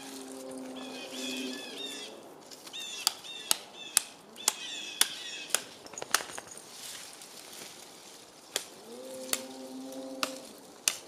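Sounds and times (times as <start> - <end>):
small birds chirping: 0.0 - 6.6.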